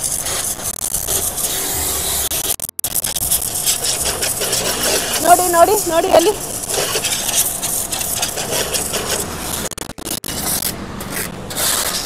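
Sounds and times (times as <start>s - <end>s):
pressure washer spraying water: 3.0s - 9.7s.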